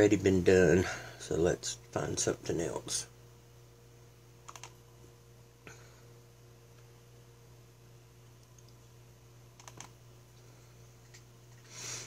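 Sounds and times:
faint low hum: 0.0 - 12.0
computer mouse clicking: 4.5 - 4.8, 9.6 - 9.9.

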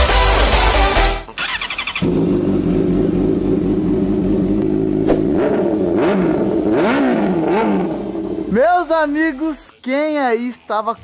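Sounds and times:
motorcycle engine idling and revving: 1.4 - 9.2.

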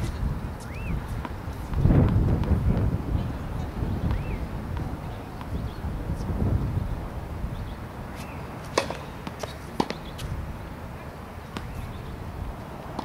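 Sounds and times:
wind rumbling on microphone: 0.0 - 9.2, 9.9 - 13.0
tennis ball impacts: 8.2 - 10.4, 11.4 - 11.9, 12.8 - 13.0.

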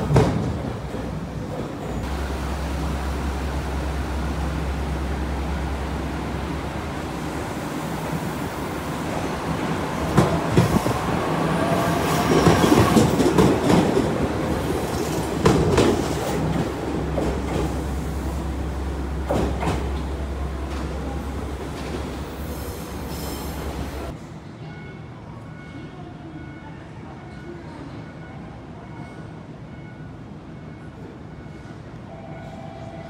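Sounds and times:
wheels squealing on rail: 9.1 - 13.3, 22.0 - 24.1
train wheels clacking over rail joints: 11.8 - 18.0.

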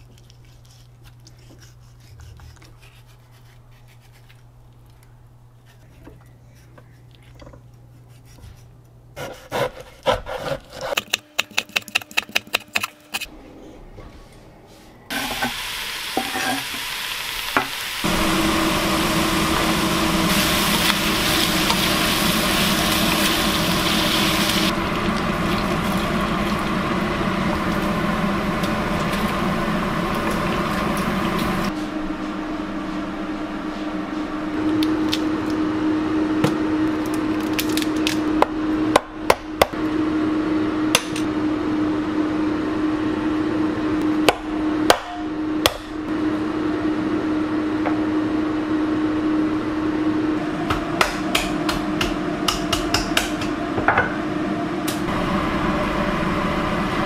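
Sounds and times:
fat sizzling in a wok: 15.1 - 31.7.

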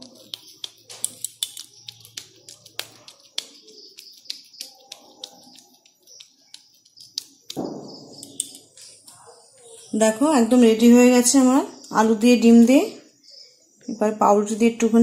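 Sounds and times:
kitchen utensils clicking: 0.0 - 4.0.

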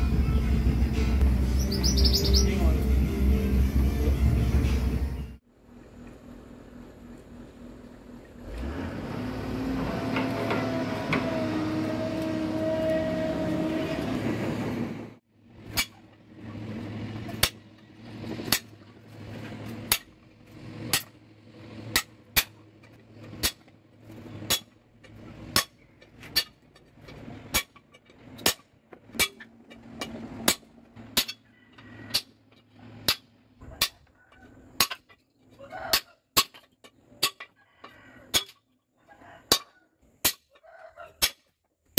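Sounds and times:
mechanical humming noise: 0.0 - 14.8.

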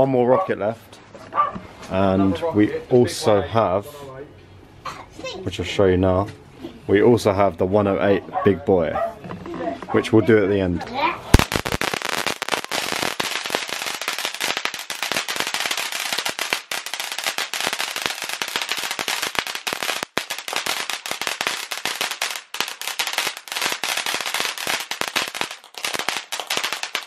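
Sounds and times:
firework crackling and hissing: 11.2 - 27.0.

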